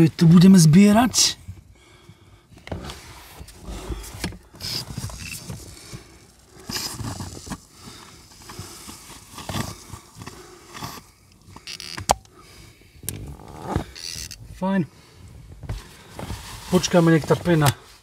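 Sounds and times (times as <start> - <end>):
rustling and scraping handling: 2.6 - 11.9, 15.2 - 18.0.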